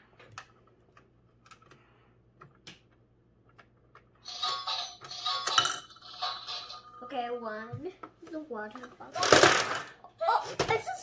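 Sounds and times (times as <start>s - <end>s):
toy coins clicking into slot: 4.2s - 6.8s.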